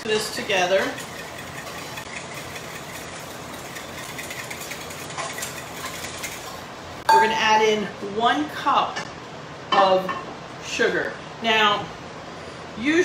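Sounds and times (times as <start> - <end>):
whisk rattling in glass bowl: 0.2 - 6.6.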